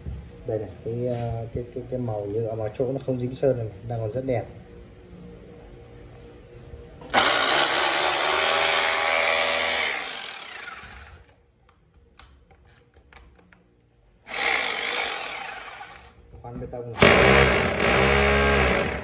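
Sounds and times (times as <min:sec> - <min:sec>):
rotary hammer drill running: 0:07.1 - 0:11.2, 0:14.3 - 0:16.2, 0:17.0 - 0:19.0
motor winding down: 0:07.1 - 0:11.3, 0:14.3 - 0:16.1, 0:17.0 - 0:19.0.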